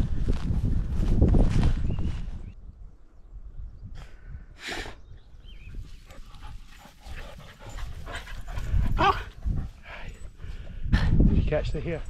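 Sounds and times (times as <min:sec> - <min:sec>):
dogs panting and snuffling: 0:05.4 - 0:12.0.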